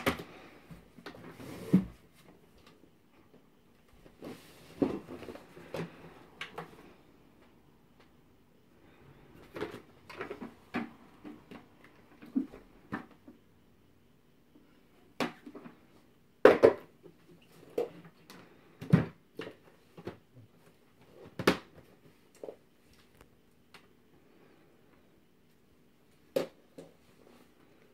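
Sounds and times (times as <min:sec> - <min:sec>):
plastic parts knocking and clicking: 0:16.4 - 0:17.0.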